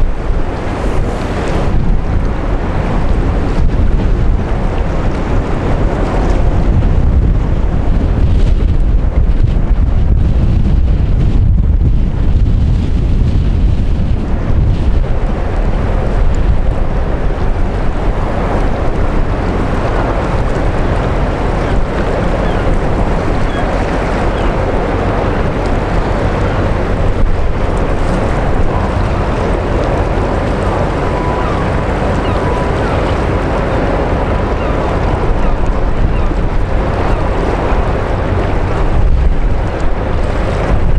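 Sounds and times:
low rumble of passing ship: 0:00.0 - 0:40.9
wind buffeting microphone: 0:00.0 - 0:40.9
water washing: 0:13.0 - 0:40.9.

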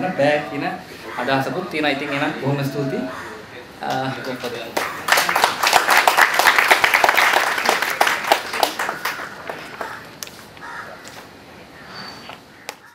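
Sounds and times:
audience applauding: 0:03.9 - 0:10.2.

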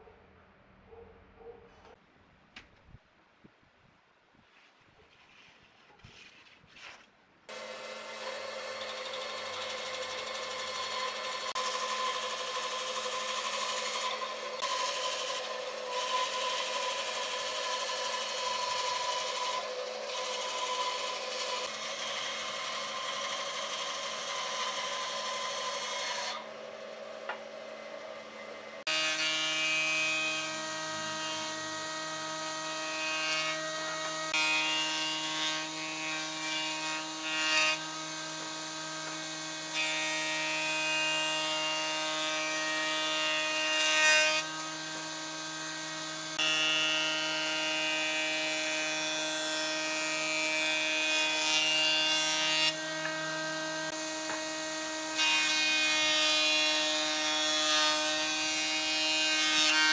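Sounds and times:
jointer humming: 0:07.5 - 0:29.2
band saw cutting wood: 0:07.5 - 0:59.9
jointer shaving board edge: 0:07.5 - 0:59.9.

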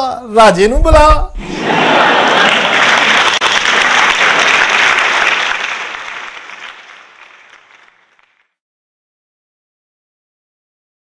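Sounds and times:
applause: 0:01.7 - 0:08.6.

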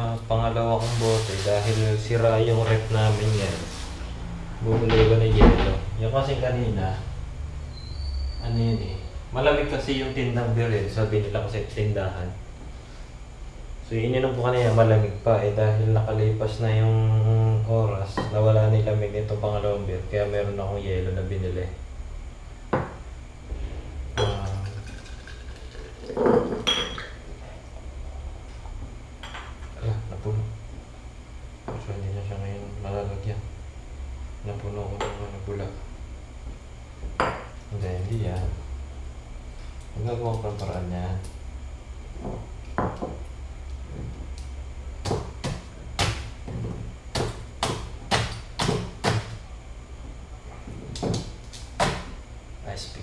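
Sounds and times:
low hum: 0:17.0 - 0:40.2
beer pouring into mug: 0:24.2 - 0:27.1
glass bottle clinking on mug: 0:24.2 - 0:27.2.

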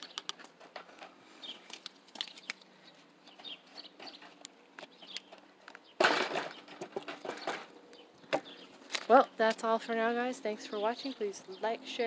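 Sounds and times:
light clicks and rustling: 0:00.0 - 0:05.8.

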